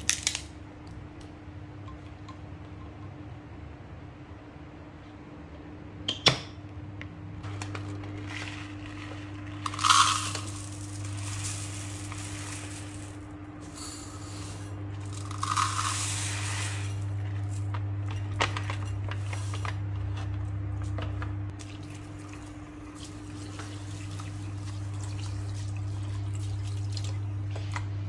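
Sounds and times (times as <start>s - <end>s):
steady low hum: 0.0s - 28.0s
rice grains pouring into plastic cup: 7.7s - 17.1s.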